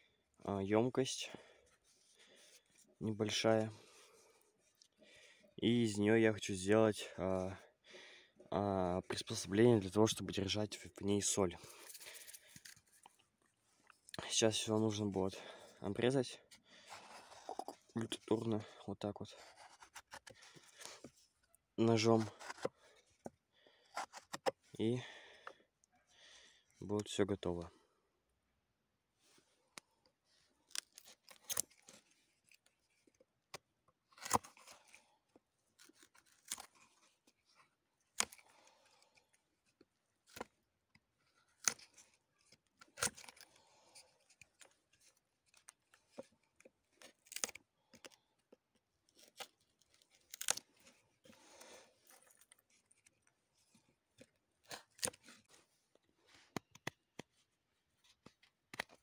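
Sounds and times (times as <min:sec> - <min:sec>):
knife cutting dry wood: 0:16.8 - 0:18.4, 0:19.3 - 0:21.2, 0:21.9 - 0:24.6, 0:30.7 - 0:33.1, 0:34.1 - 0:48.2, 0:49.1 - 0:55.7, 0:56.5 - 0:57.3.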